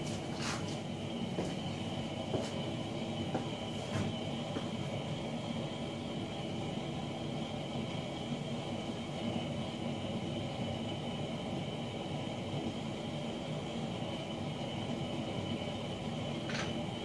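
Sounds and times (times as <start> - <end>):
space heater running: 0.0 - 17.0.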